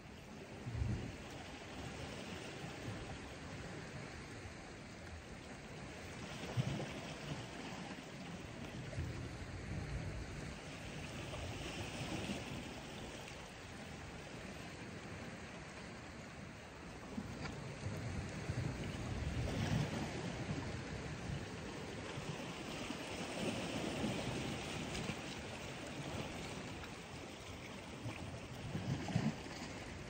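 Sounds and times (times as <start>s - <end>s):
sea washing against rocks: 17.0s - 30.0s.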